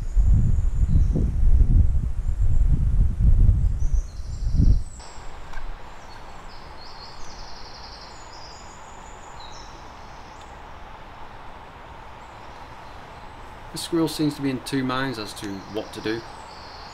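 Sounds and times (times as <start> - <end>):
faint steady hiss: 3.8 - 16.9
small birds calling: 3.8 - 16.9.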